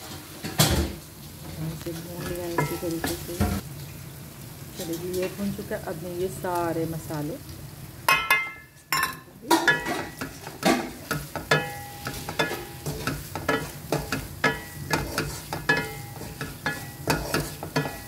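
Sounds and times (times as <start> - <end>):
steady sizzle: 0.0 - 18.0
spatula knocking against pot: 8.1 - 18.0.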